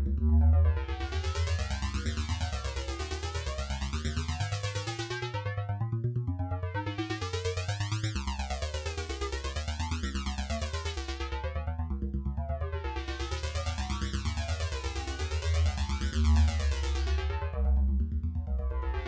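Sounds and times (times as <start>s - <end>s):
electronic synthesizer music: 0.2s - 8.3s.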